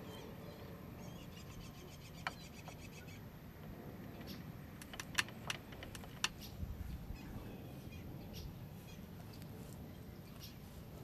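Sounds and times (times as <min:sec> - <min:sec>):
faint bird chirps: 0:00.0 - 0:03.3.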